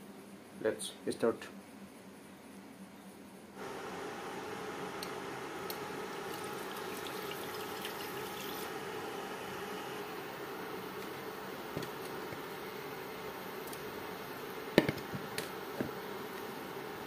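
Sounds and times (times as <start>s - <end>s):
steady hum: 0.0s - 17.0s
water splashing into frying pan: 6.3s - 8.7s.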